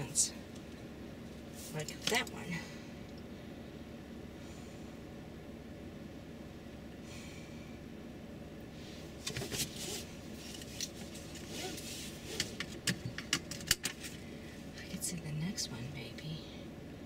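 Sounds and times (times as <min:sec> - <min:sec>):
vehicle cabin hum: 0:00.0 - 0:17.0
handling clicks and rustles: 0:09.1 - 0:14.2.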